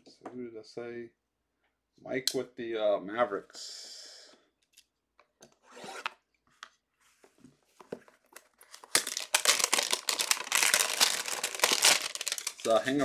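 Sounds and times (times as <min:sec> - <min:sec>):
cellophane crinkling and tearing: 0:08.3 - 0:13.0.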